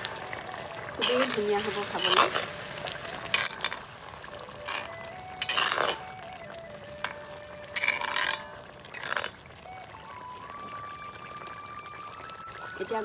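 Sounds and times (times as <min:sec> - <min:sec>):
spatula stirring wet curry: 0:01.0 - 0:09.4.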